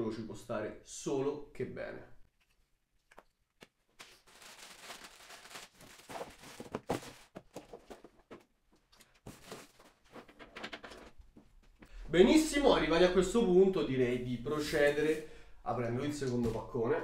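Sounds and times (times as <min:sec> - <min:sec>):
plastic wrapping crinkling: 0:03.9 - 0:08.4, 0:09.0 - 0:11.1.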